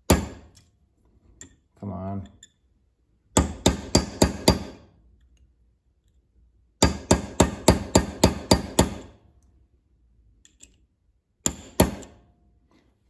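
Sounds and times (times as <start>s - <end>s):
hammer striking metal punch: 0.0s - 0.6s, 3.4s - 4.8s, 6.8s - 9.1s, 11.4s - 12.2s.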